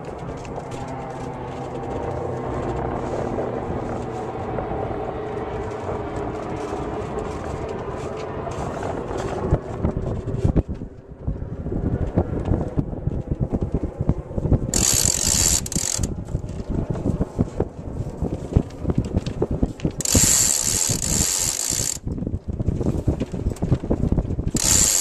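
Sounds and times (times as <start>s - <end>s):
winch ratcheting clicks: 14.7s - 16.4s, 20.0s - 22.1s, 24.5s - 25.0s.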